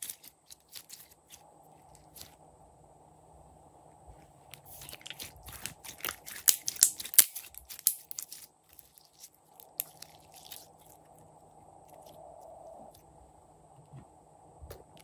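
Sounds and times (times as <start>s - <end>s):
slime crackling and popping: 4.6s - 11.2s.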